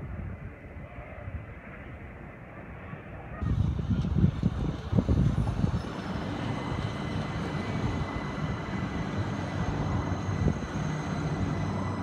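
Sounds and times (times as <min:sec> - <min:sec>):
high whine of train: 0:00.0 - 0:12.0
train rumbling: 0:03.4 - 0:12.0.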